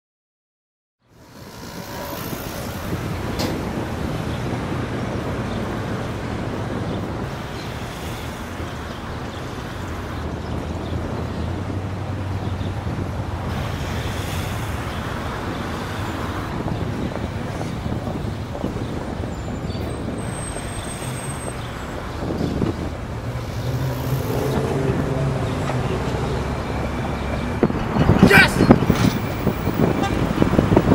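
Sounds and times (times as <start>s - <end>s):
vehicles passing: 1.0s - 30.9s.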